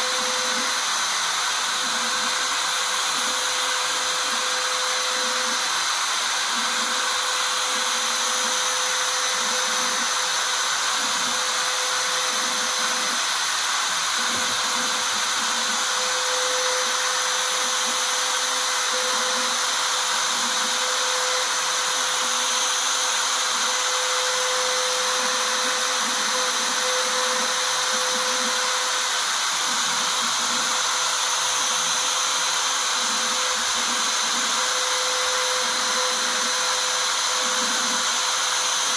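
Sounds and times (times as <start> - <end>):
hiss of metal cutting: 0.0 - 38.9
router spindle whine: 0.0 - 38.9.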